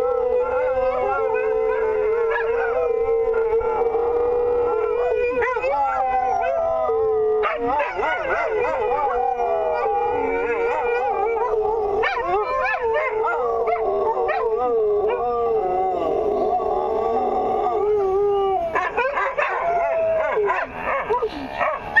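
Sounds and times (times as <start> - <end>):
dogs howling: 0.0 - 22.0
dogs yipping: 18.7 - 22.0.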